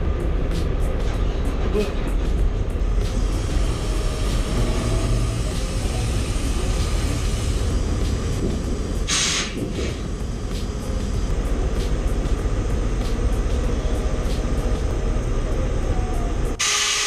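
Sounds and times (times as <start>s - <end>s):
diesel truck engine rumbling: 0.0s - 16.6s
air hiss: 3.1s - 10.8s, 16.6s - 17.0s.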